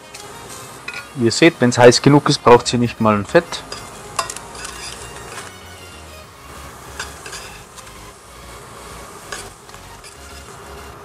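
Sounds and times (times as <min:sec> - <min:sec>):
meat sizzling in a frying pan: 0:00.0 - 0:11.0
metal utensil clicking on pan: 0:03.6 - 0:05.5, 0:06.9 - 0:07.6, 0:09.3 - 0:10.5.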